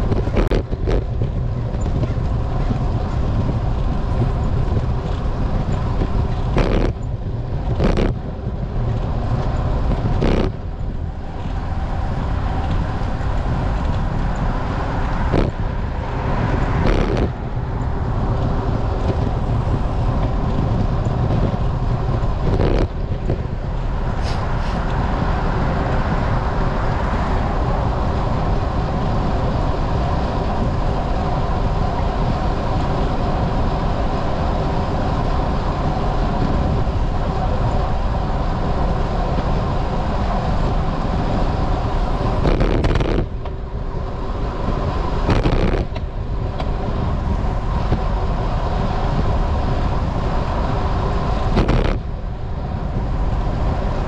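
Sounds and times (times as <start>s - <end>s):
wind and road noise while cycling: 0.0s - 54.0s.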